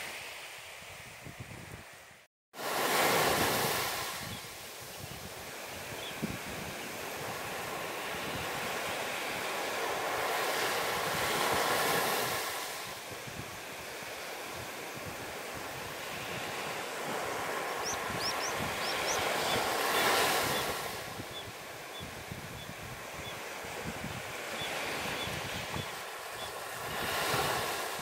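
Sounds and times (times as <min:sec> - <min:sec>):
sea waves washing ashore: 0:00.0 - 0:28.0
wind on microphone: 0:00.7 - 0:28.0.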